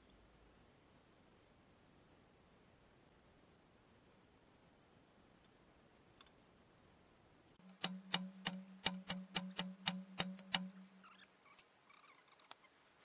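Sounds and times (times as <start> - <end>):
hammer striking steel drift: 7.6 - 11.0.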